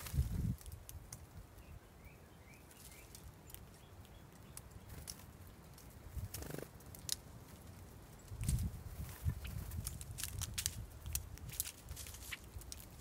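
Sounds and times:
rustle of wings: 0.0s - 0.8s, 4.7s - 13.0s
soft high bird chirps: 1.6s - 5.1s
birds pecking on seed: 2.6s - 13.0s.

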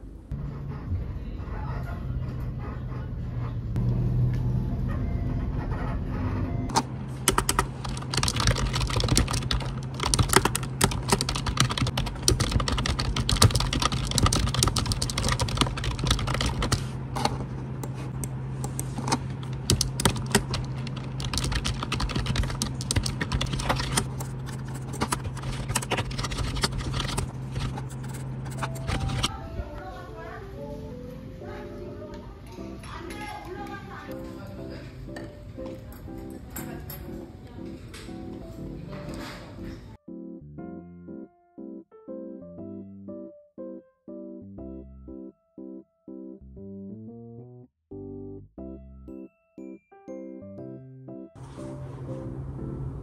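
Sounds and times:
fast typing on keyboard: 7.3s - 16.9s, 19.5s - 29.3s.

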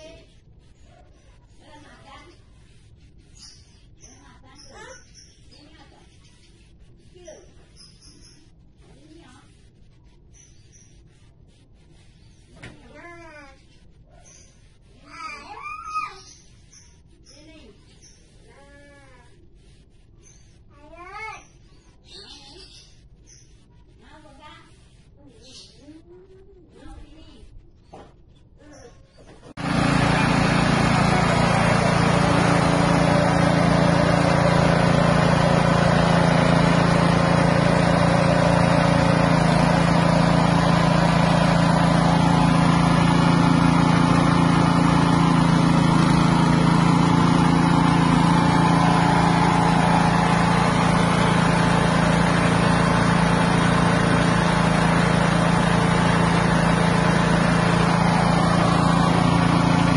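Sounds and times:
small engine humming: 29.4s - 59.9s.

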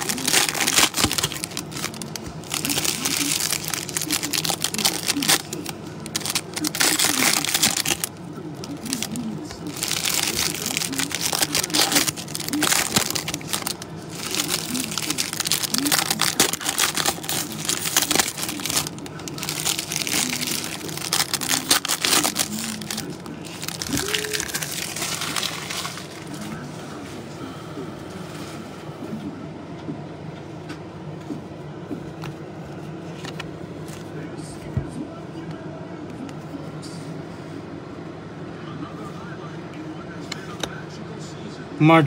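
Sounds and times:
foil wrappers crinkling and tearing: 0.0s - 26.7s.

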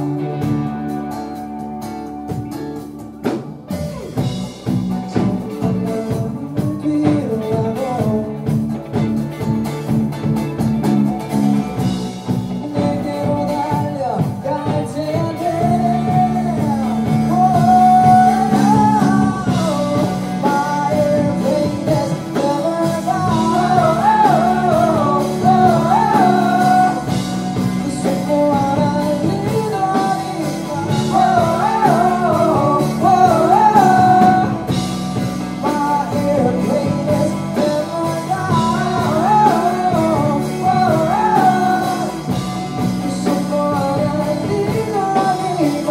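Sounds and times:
person singing: 0.0s - 1.1s, 4.9s - 8.9s, 11.8s - 45.9s
electric bass: 0.0s - 45.9s
electric guitar chords: 0.0s - 45.9s.

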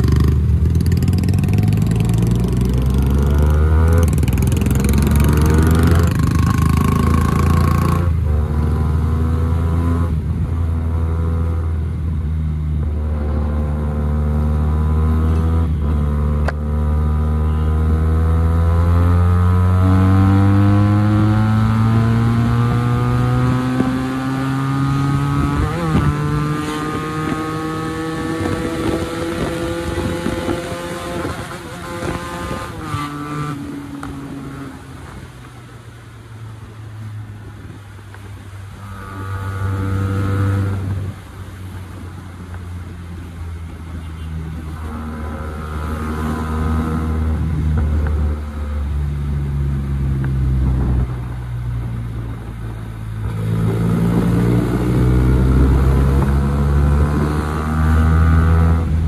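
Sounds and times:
motorcycle engine accelerating: 0.0s - 34.8s, 38.7s - 41.2s, 44.1s - 59.0s.

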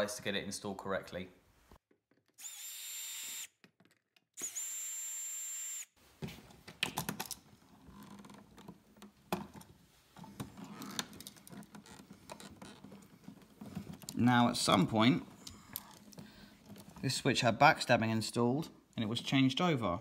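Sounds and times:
cordless drill motor whining: 2.4s - 3.5s, 4.4s - 6.0s.

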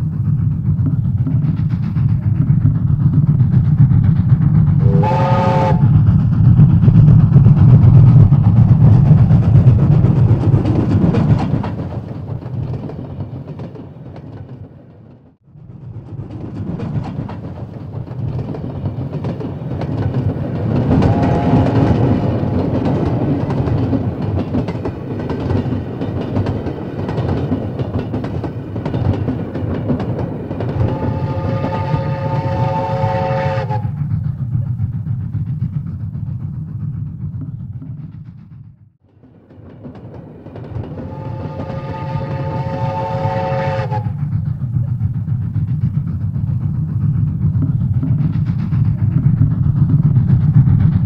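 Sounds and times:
train rumbling and clattering: 0.0s - 51.0s
train horn blast: 4.8s - 5.8s, 21.0s - 21.9s, 30.8s - 34.0s, 41.0s - 44.2s.

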